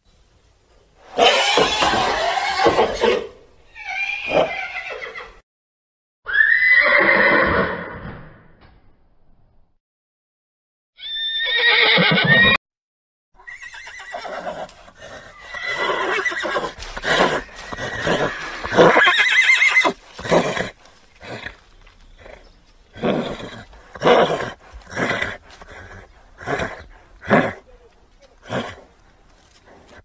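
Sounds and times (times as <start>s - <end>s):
horse whinnying: 1.1s - 5.4s, 6.3s - 8.1s, 11.0s - 12.6s, 13.4s - 21.6s, 23.0s - 27.7s.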